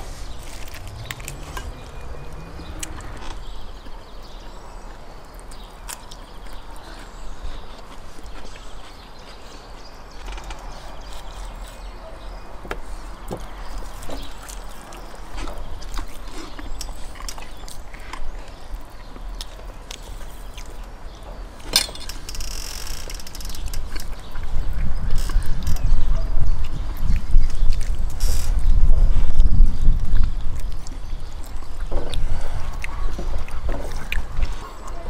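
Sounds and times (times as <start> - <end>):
low rumble: 0.0 - 4.0
food being torn and chewed: 0.3 - 3.6, 12.8 - 20.9, 26.6 - 28.8.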